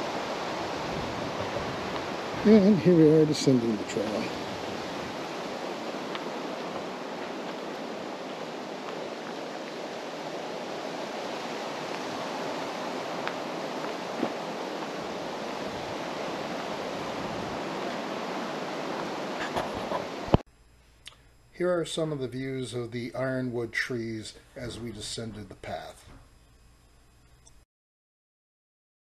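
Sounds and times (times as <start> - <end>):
wind rushing through trees: 0.0 - 20.4.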